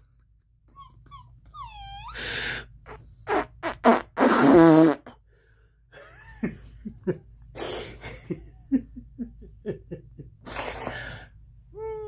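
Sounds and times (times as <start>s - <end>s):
blown raspberry: 2.9s - 5.2s, 10.4s - 11.1s.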